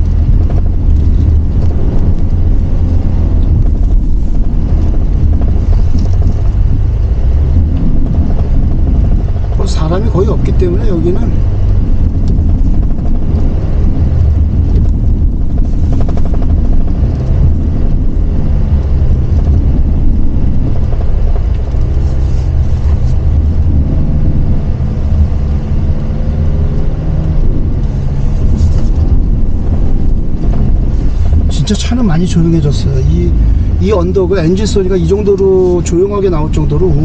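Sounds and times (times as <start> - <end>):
engine humming quietly: 0.0 - 37.0
equipment shaking in van: 14.3 - 18.0.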